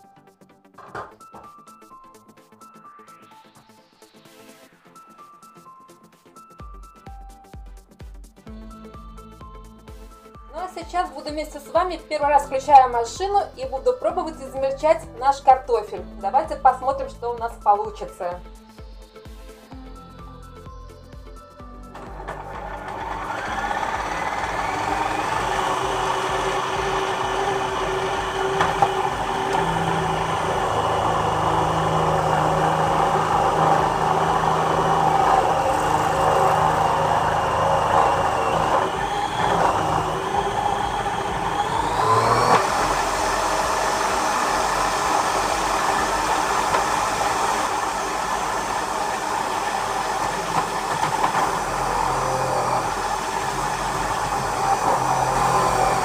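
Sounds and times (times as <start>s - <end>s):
food processor motor grating: 21.9s - 56.0s.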